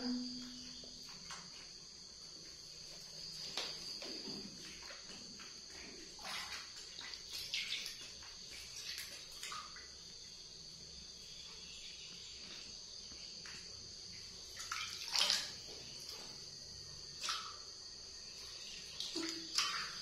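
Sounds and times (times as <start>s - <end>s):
water splashing in a metal basin: 3.5s - 10.2s, 14.4s - 16.4s, 17.0s - 20.0s.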